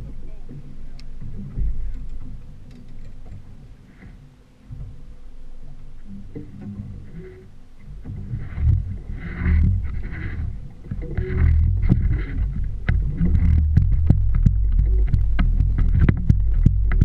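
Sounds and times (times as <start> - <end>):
wind buffeting microphone: 6.3 - 17.0
sharp knocks and clicks: 8.0 - 17.0.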